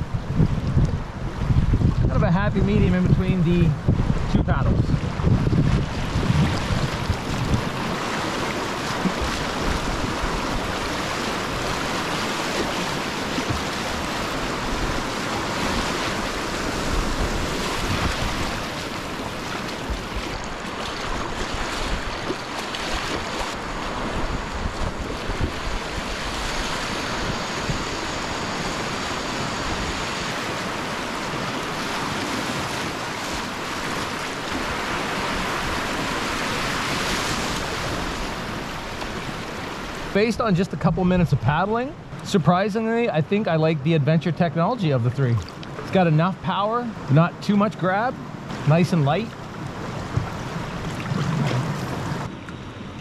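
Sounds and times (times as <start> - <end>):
wind buffeting microphone: 0.0 - 41.5
rushing whitewater: 4.6 - 53.0
kayak paddle splashes: 4.9 - 40.2, 45.3 - 46.0, 48.4 - 53.0.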